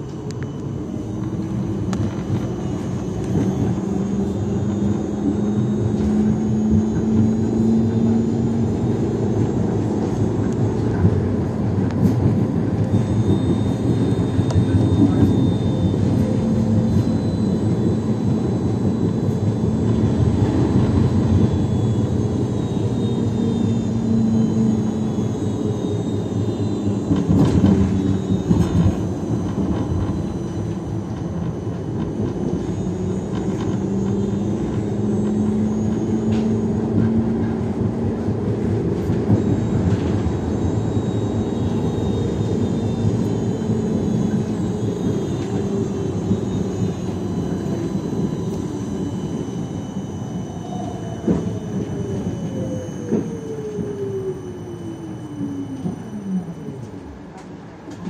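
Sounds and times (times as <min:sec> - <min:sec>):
low hum: 0:00.0 - 0:57.4
high motor whine: 0:00.0 - 0:58.0
tram wheels rumbling on rail: 0:00.0 - 0:58.0.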